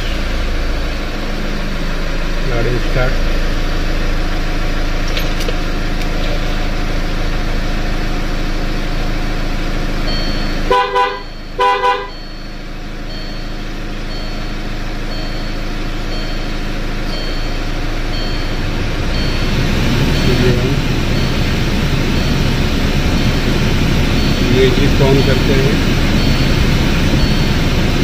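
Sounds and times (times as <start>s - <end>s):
car engine idling: 0.0s - 28.0s
car horn double blast: 10.5s - 12.4s
faint high beep: 11.2s - 18.6s, 19.2s - 23.5s, 24.2s - 27.7s.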